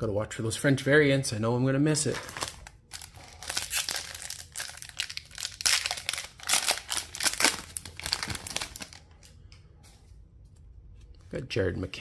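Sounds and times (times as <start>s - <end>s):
foil wrapper crinkling and tearing: 2.1s - 9.3s.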